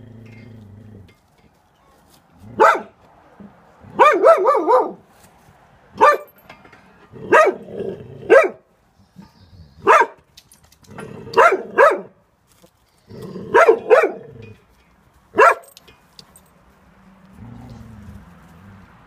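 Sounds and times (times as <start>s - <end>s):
dog barking: 2.6s - 3.0s, 3.9s - 5.0s, 6.0s - 6.3s, 7.3s - 7.6s, 8.3s - 8.6s, 9.8s - 10.2s, 11.4s - 12.1s, 13.5s - 14.2s, 15.4s - 15.7s
dog growling: 17.4s - 18.8s.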